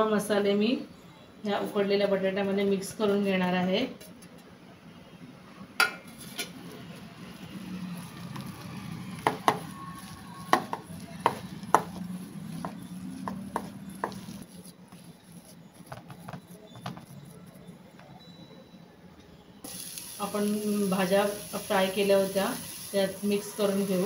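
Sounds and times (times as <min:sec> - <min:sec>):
soft mashing of potato: 0:08.0 - 0:17.6.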